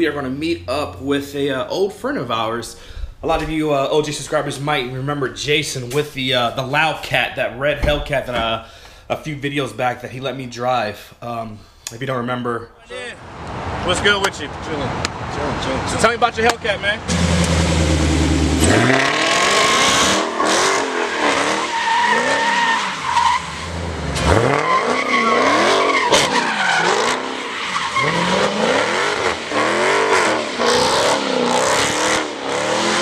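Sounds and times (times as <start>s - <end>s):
car engine revving: 13.1s - 33.0s
tyres squealing: 19.5s - 30.8s.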